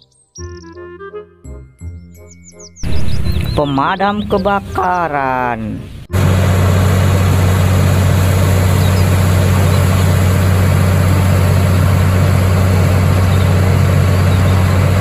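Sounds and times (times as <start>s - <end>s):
truck engine humming: 5.8s - 15.0s
water cannon spraying: 6.1s - 15.0s.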